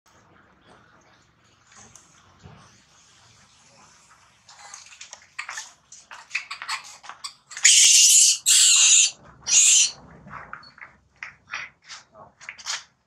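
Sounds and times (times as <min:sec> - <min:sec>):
infant monkey squeaking: 0:06.4 - 0:09.9
infant monkey screaming: 0:07.6 - 0:09.9.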